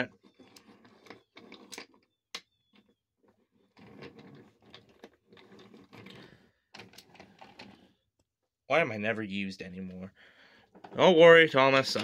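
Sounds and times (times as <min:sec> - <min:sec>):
toy train rolling on wooden track: 0:00.0 - 0:02.0, 0:02.6 - 0:07.9, 0:10.7 - 0:12.0.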